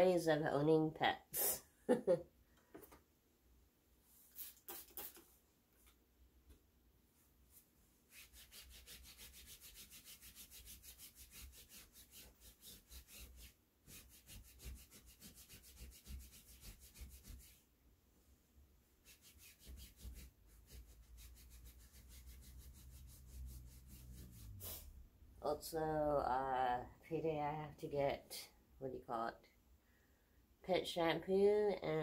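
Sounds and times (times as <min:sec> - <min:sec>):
towel scrubbing over bed sheet: 0:08.1 - 0:17.6.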